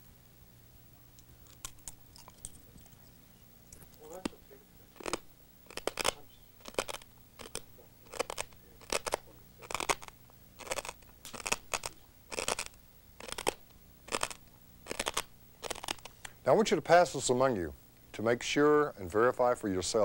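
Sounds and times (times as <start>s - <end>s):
glass being chewed: 1.4s - 4.3s.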